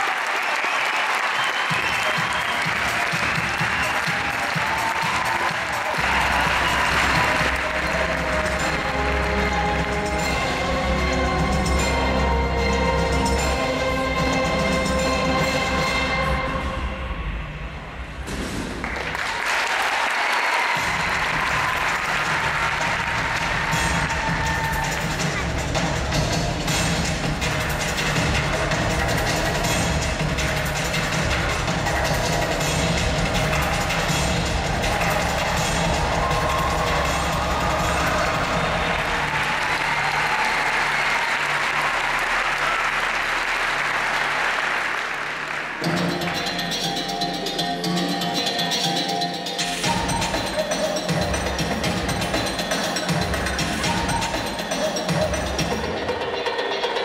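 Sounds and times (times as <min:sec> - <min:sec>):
audience applause in arena: 0:00.0 - 0:10.5, 0:18.8 - 0:25.6, 0:30.9 - 0:46.5
music with low beat: 0:20.8 - 0:39.3.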